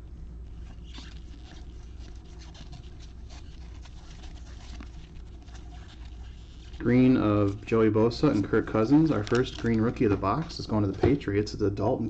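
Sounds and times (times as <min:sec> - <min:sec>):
steady low hum: 0:00.0 - 0:12.0
cards clicking and rustling: 0:07.3 - 0:11.1.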